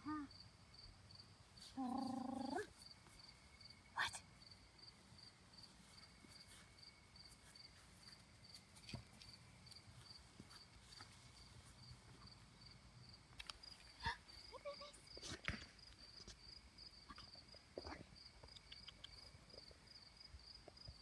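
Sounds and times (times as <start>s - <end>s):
cricket chirping: 0.0s - 21.0s
soft clicks on grass: 5.7s - 12.3s.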